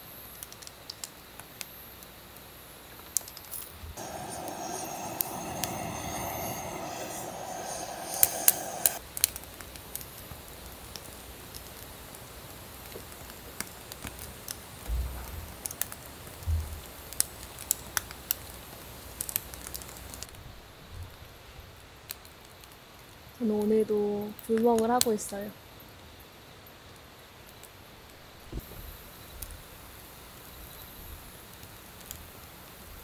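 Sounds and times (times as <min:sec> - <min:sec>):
wood fire crackling and popping: 0:00.4 - 0:01.8, 0:03.0 - 0:20.4, 0:21.1 - 0:25.3, 0:26.5 - 0:30.5, 0:31.2 - 0:33.0
butane torch hissing: 0:04.0 - 0:09.0.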